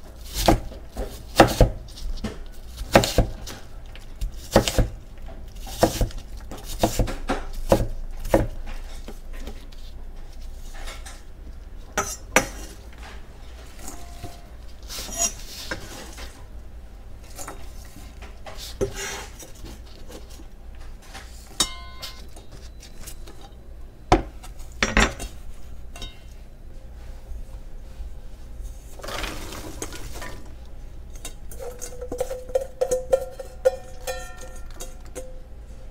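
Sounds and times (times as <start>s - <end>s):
knife chopping on wooden board: 0.3s - 3.6s, 4.3s - 5.0s, 5.7s - 8.6s
blade scraping cutting board: 14.8s - 16.3s.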